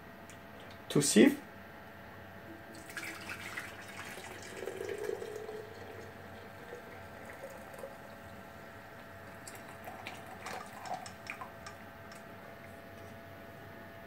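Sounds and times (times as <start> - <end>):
tea pouring through strainer: 2.5 - 12.9.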